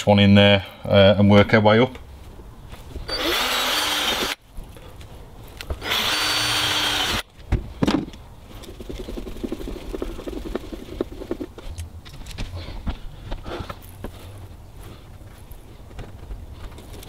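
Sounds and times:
cordless drill driving a screw: 3.1 - 4.4, 5.8 - 7.2.

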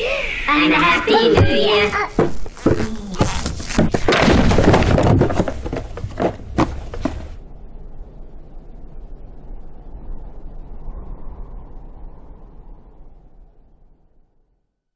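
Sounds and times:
faint low hiss: 0.0 - 14.9
cartoon boxes tumbling down: 1.4 - 7.4.

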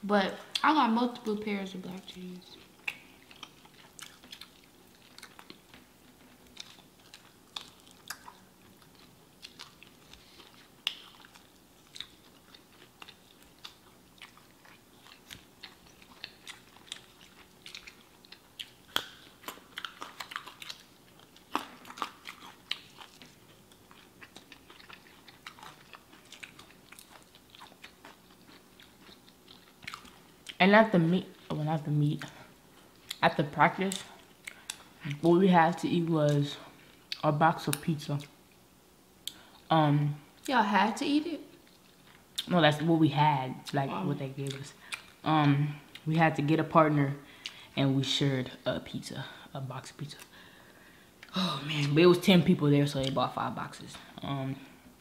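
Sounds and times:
small sharp eating clicks: 0.5 - 30.6
people chewing with wet smacks: 0.5 - 38.4, 43.6 - 46.1.

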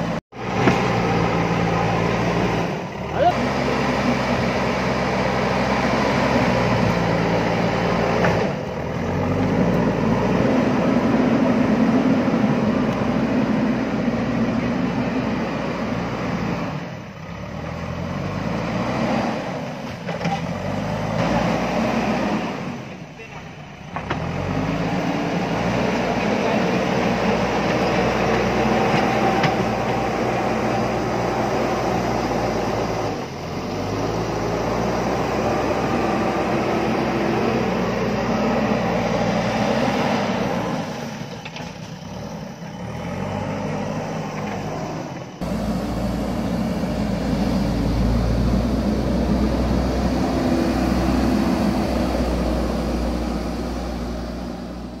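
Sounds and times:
diesel engine revving: 0.0 - 55.0.

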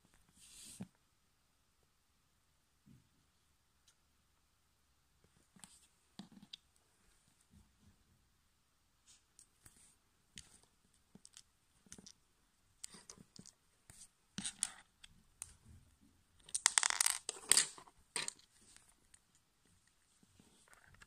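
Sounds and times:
plastic parts clicking and scraping: 14.4 - 15.5.

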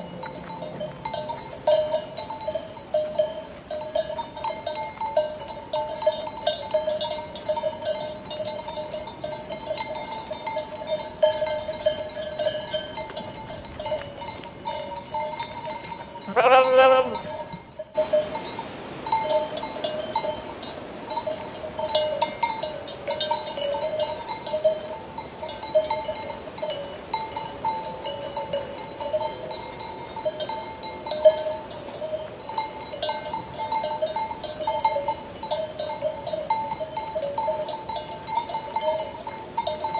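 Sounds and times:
sheep bells clanking: 0.0 - 39.9
sheep bleating: 16.3 - 17.3.

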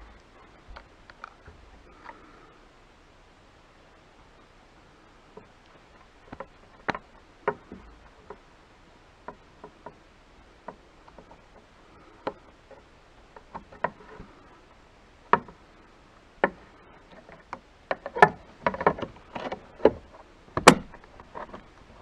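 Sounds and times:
plastic clicks and knocks: 16.4 - 21.7.

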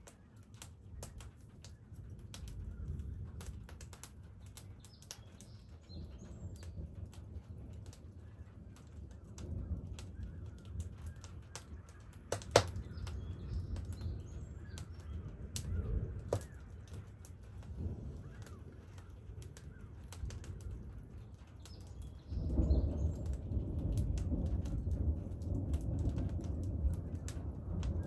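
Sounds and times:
sharp pops and crackles: 0.0 - 28.0
thunder rumbling: 0.9 - 28.0
faint bird calls: 7.9 - 23.4.

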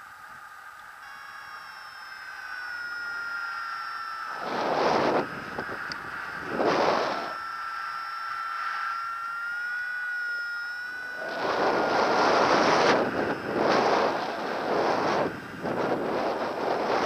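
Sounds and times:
high electronic tone: 1.0 - 17.0
wind buffeting microphone: 4.3 - 7.4, 11.0 - 17.0.

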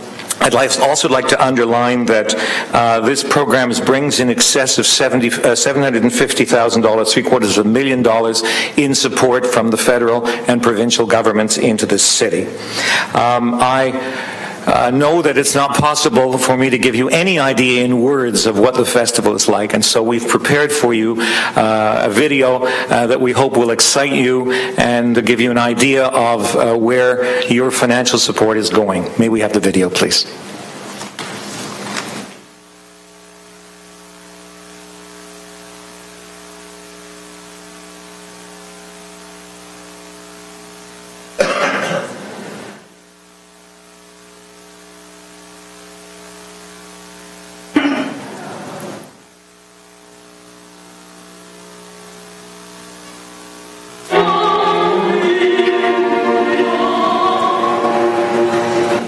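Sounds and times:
electrical mains hum: 0.0 - 59.0
orchestral music with soprano: 54.1 - 59.0.

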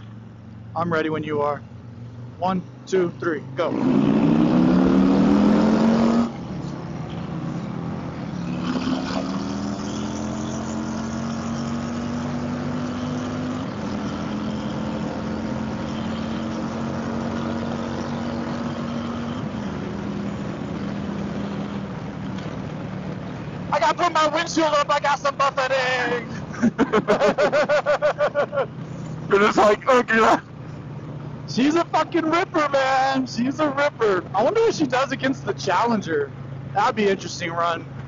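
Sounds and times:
motorcycle engine revving: 3.4 - 24.1.

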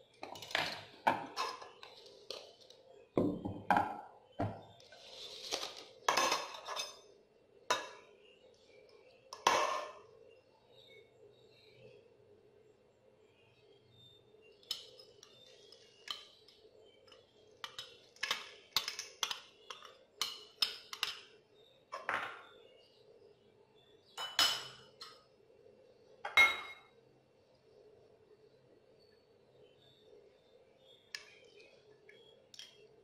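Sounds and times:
spoon clinking on ceramic bowl: 24.2 - 24.8.

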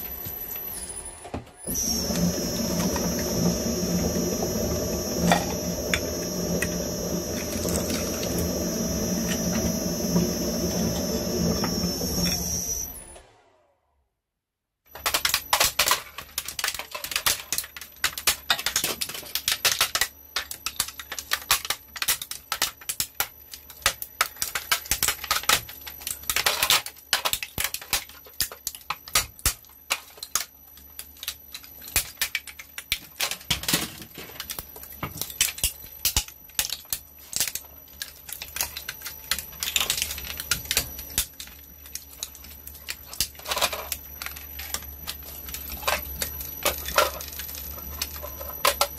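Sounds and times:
shredder motor hum: 0.0 - 13.9
plastic cracking and snapping: 15.0 - 48.9.

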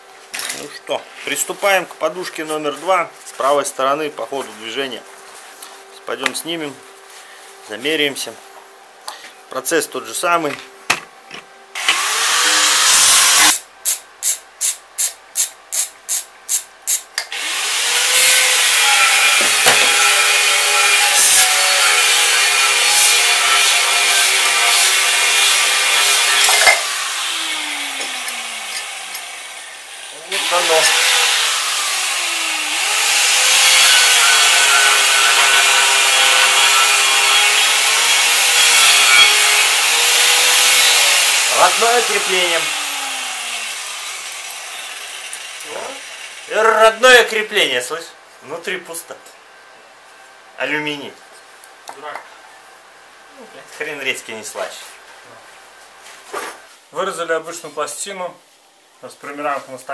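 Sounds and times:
angle grinder cutting steel: 11.8 - 13.6, 16.9 - 46.6
ratchet wrench rasping strokes: 13.5 - 17.1.

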